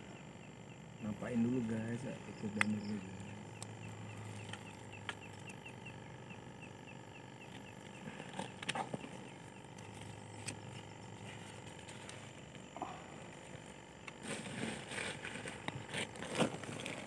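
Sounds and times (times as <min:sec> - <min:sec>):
small animal chirping: 0:02.3 - 0:11.2.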